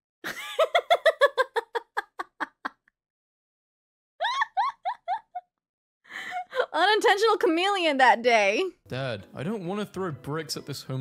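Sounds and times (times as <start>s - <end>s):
woman giggling: 0.2s - 2.9s, 4.2s - 5.5s.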